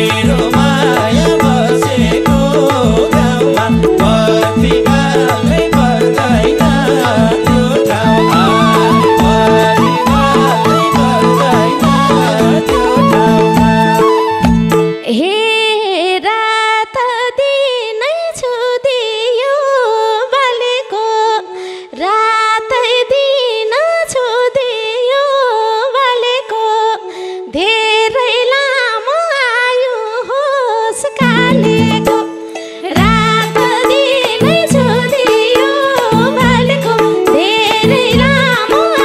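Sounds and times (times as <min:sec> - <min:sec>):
drums and accompaniment: 0:00.0 - 0:15.2, 0:31.2 - 0:39.0
held instrumental note: 0:00.0 - 0:15.2
woman singing into microphone: 0:00.0 - 0:39.0.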